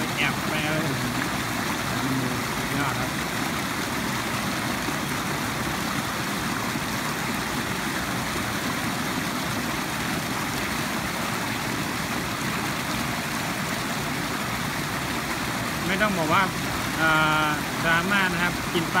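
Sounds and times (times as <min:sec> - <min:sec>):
water rushing over a weir: 0:00.0 - 0:19.0.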